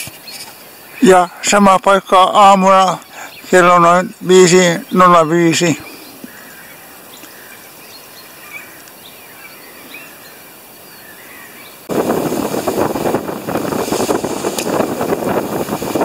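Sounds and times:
faint bird chirps: 2.7s - 11.9s
gusty wind buffeting microphone: 11.8s - 16.0s.

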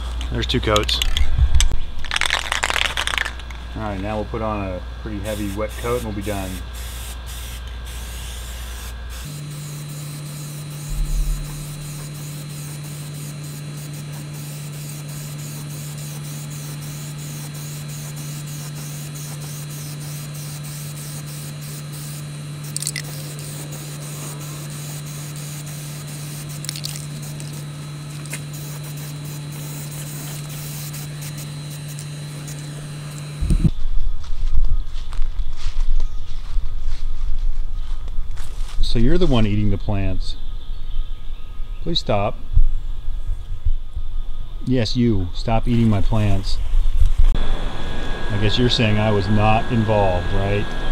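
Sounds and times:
spray paint can hissing: 2.1s - 3.4s, 5.2s - 33.7s.

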